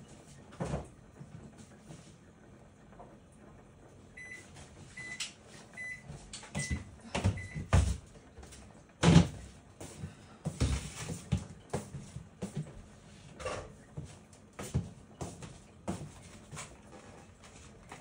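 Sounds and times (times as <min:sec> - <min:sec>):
kitchen knocks and thumps: 0:06.5 - 0:08.1, 0:09.0 - 0:09.5.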